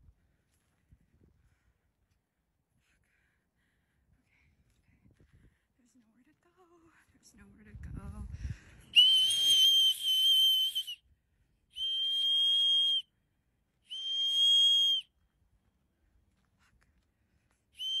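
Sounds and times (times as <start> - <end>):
shrill whistle blasts: 8.9 - 11.0, 11.7 - 13.1, 13.9 - 15.1, 17.8 - 18.0.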